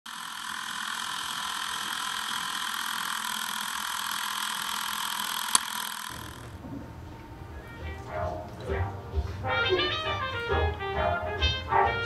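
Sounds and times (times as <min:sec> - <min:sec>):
film projector whirr: 0:00.1 - 0:06.5.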